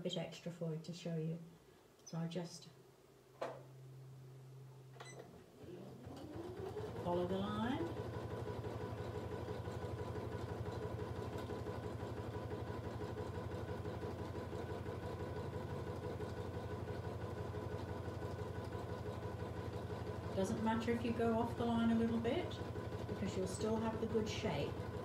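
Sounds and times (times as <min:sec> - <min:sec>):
sewing machine running: 0:06.0 - 0:25.0.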